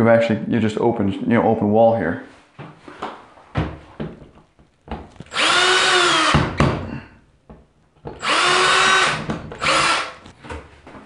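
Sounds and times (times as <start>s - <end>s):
cordless drill boring into wall: 5.2s - 6.6s, 8.1s - 10.3s.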